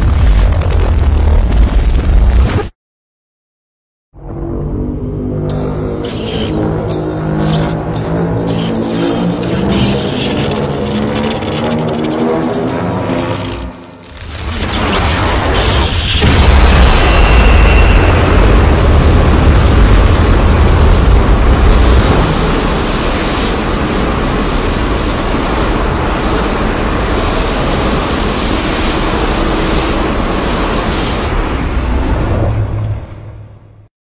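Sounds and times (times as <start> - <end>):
deep creature rumbling: 7.2 - 12.2.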